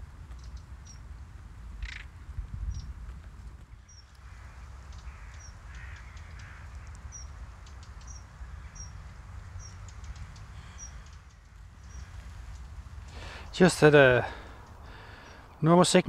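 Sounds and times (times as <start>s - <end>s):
wind on microphone: 0.0s - 13.5s
bird chirping: 3.8s - 15.7s
harsh bird calls: 3.8s - 16.0s.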